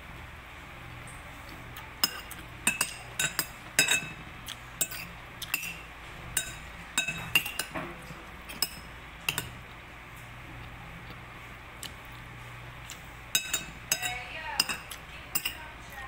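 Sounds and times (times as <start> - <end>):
cutlery clinking on a plate: 2.0 - 4.2, 4.8 - 9.6, 13.3 - 15.6.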